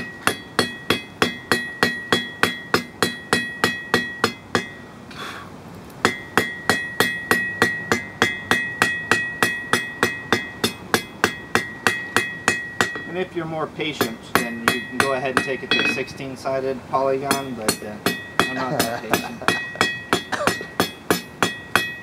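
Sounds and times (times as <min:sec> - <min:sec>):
hammer striking steel on anvil: 0:00.0 - 0:04.8, 0:06.0 - 0:16.4, 0:17.2 - 0:22.0.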